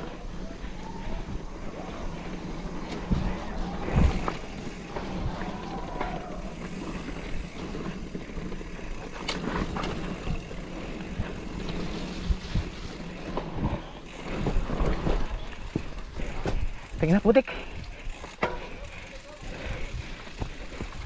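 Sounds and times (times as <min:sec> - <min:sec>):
bike tyres rolling over dirt: 0:00.0 - 0:21.0
bike knocks and rattles: 0:08.7 - 0:16.9, 0:18.1 - 0:18.9.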